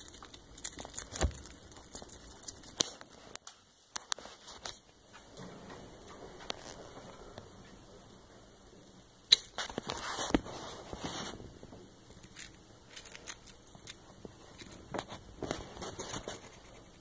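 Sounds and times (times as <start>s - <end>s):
hedgehog crunching mealworms: 0.0s - 4.8s, 12.1s - 17.0s.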